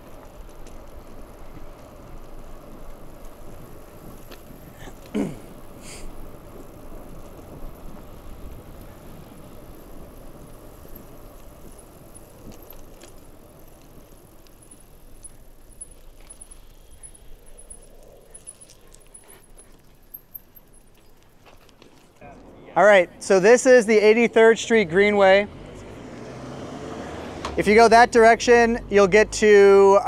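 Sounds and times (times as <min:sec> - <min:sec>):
bike rattles and clicks: 0:00.0 - 0:22.3
bicycle tyres rumbling on road: 0:00.0 - 0:30.0.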